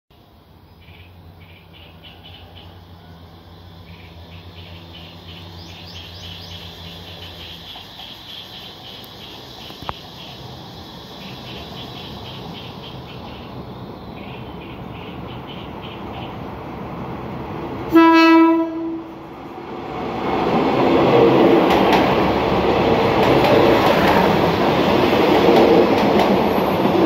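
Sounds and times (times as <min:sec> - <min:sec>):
distant train rumble: 0:00.1 - 0:27.0
birds chirping: 0:03.7 - 0:17.0.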